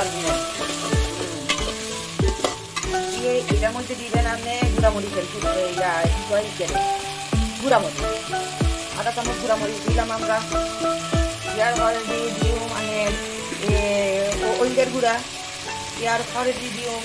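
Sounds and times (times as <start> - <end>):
background music with beat: 0.0 - 15.0
vegetables sizzling in oil: 0.0 - 17.0
metal spatula scraping pot: 0.1 - 3.3.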